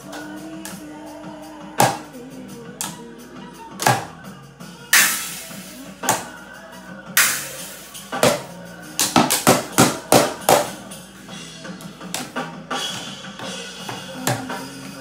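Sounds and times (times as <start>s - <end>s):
background music with low tones: 0.0s - 15.0s
toy drum hit with drumsticks: 5.0s - 6.3s, 7.2s - 10.8s.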